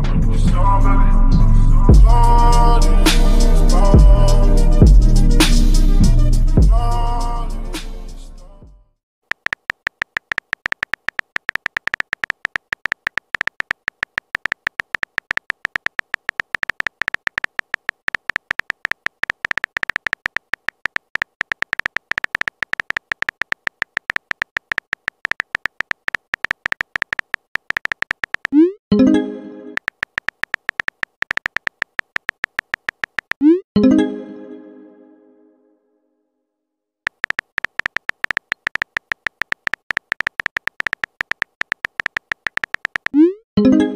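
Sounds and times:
electronic typing tick-beeps: 0:09.3 - 0:28.8, 0:29.8 - 0:33.6, 0:37.1 - 0:43.4.

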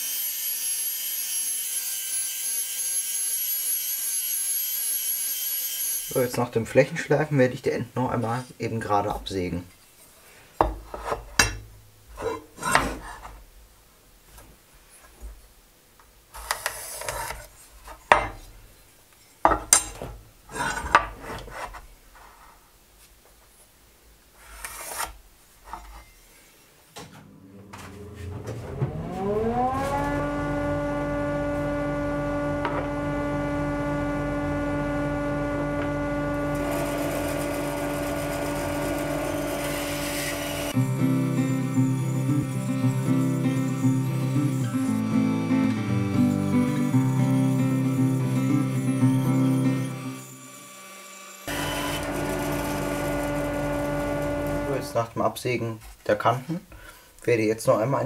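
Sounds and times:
tools knocking and scraping on wood: 0:10.6 - 0:13.4, 0:16.4 - 0:18.5, 0:19.2 - 0:22.4
bandsaw motor running: 0:27.2 - 0:55.0.

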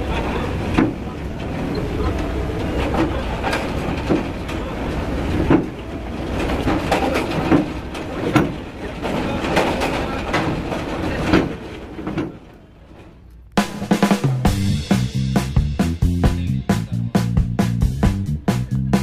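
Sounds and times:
car engines rumbling: 0:00.0 - 0:19.0
metallic clanks of wheels on ramp: 0:00.3 - 0:13.4
music with drums: 0:13.6 - 0:19.0.

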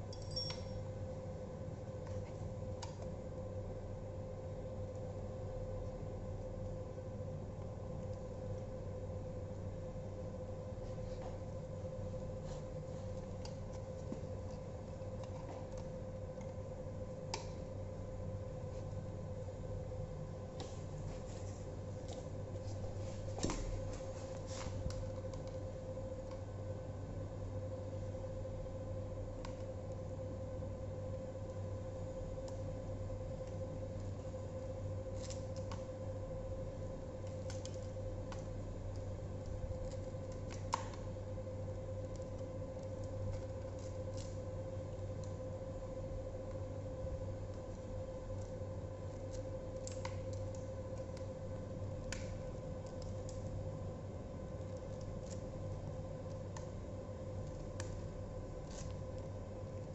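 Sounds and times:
steady background hum: 0:00.0 - 0:59.9
cables clicking and rubbing: 0:10.6 - 0:19.5, 0:32.3 - 0:59.9.

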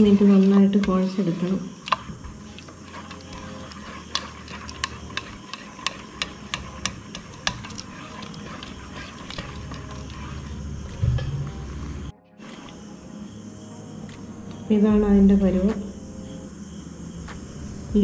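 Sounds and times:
batter squelching: 0:00.0 - 0:12.8.

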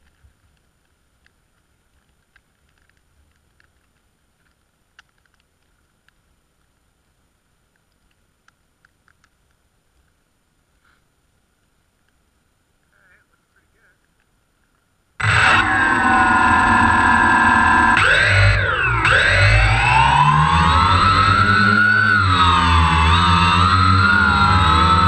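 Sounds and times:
faint ticks: 0:00.0 - 0:12.2, 0:14.0 - 0:14.9
faint low rumble: 0:00.0 - 0:25.0.

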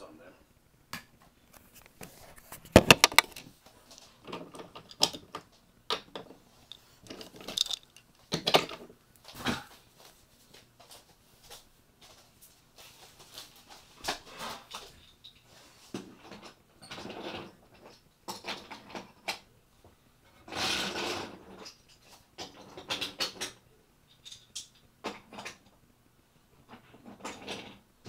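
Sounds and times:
camera handling knocks and rubbing: 0:01.5 - 0:03.5.

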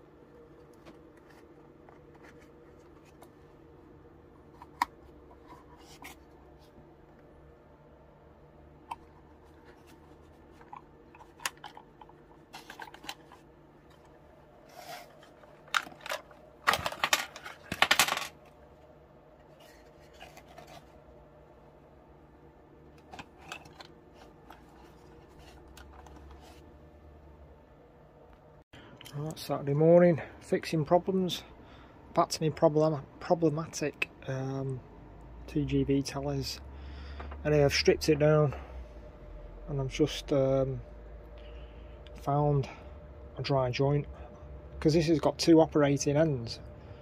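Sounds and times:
plastic clicks and scrapes: 0:08.9 - 0:14.1, 0:23.0 - 0:26.6.

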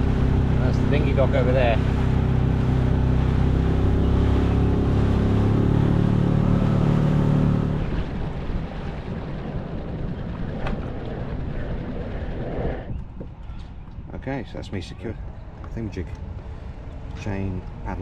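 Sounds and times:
outboard motor running: 0:00.0 - 0:12.4
wind: 0:00.0 - 0:18.0.

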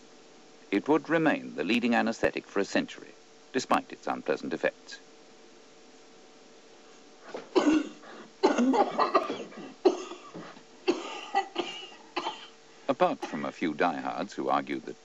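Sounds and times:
person coughing hard: 0:07.4 - 0:12.6, 0:13.2 - 0:13.5.

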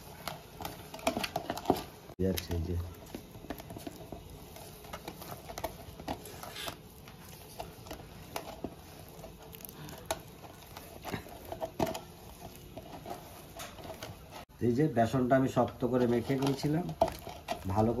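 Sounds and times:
fingers scraping flour in steel bowl: 0:03.0 - 0:14.4.

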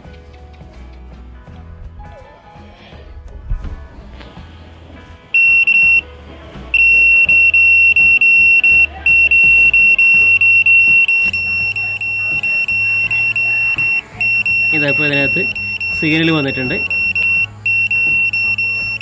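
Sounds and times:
meter buzzer beeping high tone: 0:05.4 - 0:06.0, 0:06.8 - 0:19.0.

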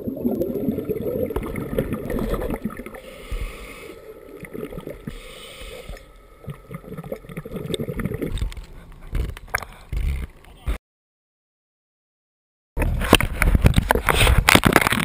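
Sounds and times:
underwater bubbling: 0:00.0 - 0:10.4
water swishes and knocks: 0:00.0 - 0:10.4.

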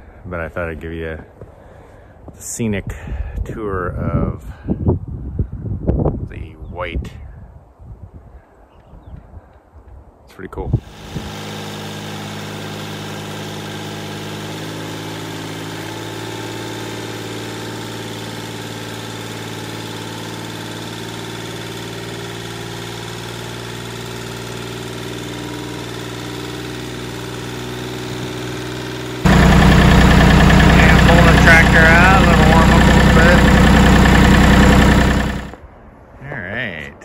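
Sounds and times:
diesel tractor engine running: 0:10.8 - 0:35.6.

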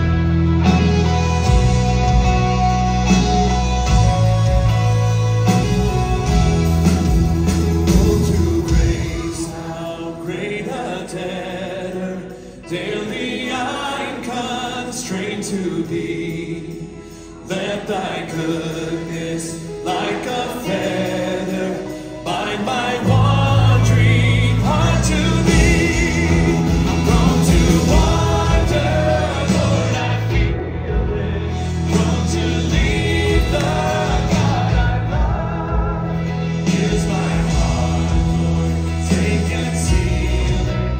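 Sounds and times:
deep bass notes: 0:00.0 - 0:09.7, 0:23.0 - 0:40.9
guitar: 0:00.0 - 0:40.9
person singing: 0:00.0 - 0:40.9.

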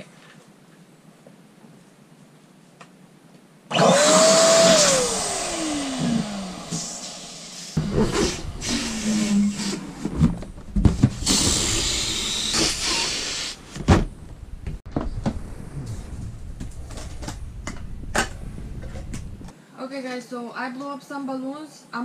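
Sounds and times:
balloon inflator hissing: 0:03.7 - 0:10.1, 0:11.0 - 0:13.7
rubber balloon squeaks: 0:11.1 - 0:13.5.

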